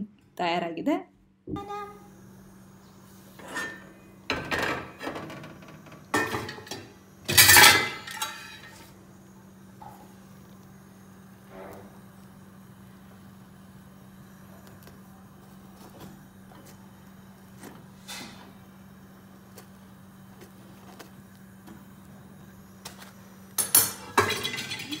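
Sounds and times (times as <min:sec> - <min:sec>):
metallic clatter of tongs and plate: 0:06.2 - 0:08.8, 0:23.6 - 0:25.0.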